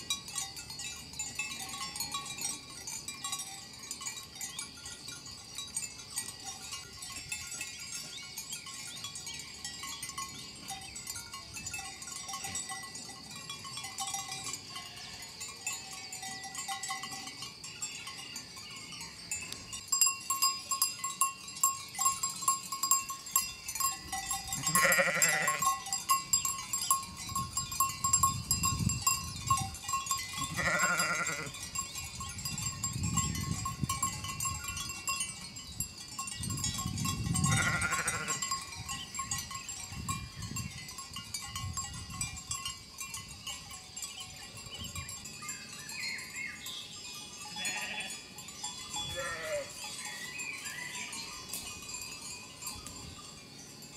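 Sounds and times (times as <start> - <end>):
livestock bells clanking: 0.0 - 53.9
sheep bleating: 24.6 - 25.6, 30.5 - 31.5, 37.5 - 38.4, 47.6 - 48.1, 49.2 - 49.8.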